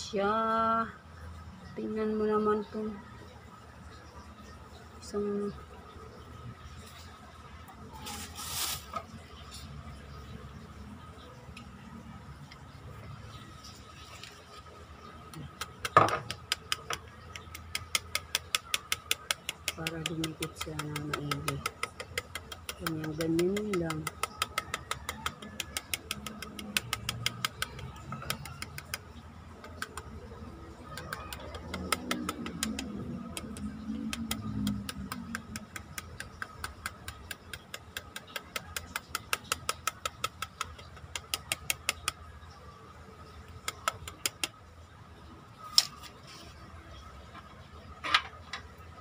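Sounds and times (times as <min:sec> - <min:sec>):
rapid mechanical ticking: 0:15.4 - 0:42.2.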